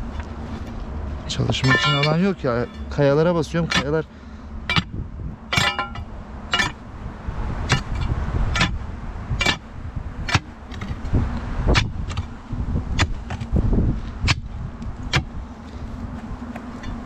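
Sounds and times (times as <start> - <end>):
steady low rumble: 0.0 - 17.0
crowbar clinking against rock: 1.6 - 3.0, 5.5 - 6.8.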